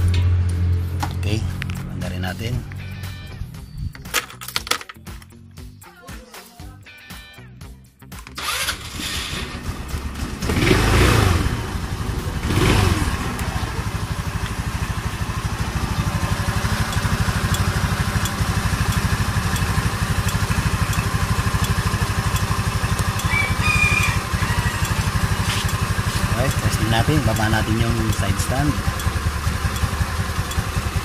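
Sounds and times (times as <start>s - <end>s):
scooter engine revving and idling: 8.4s - 31.0s.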